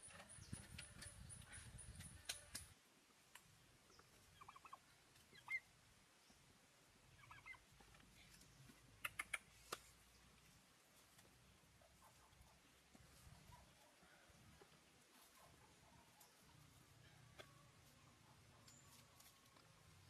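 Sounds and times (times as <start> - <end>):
sharp clicks: 2.0 - 2.7, 9.0 - 9.9.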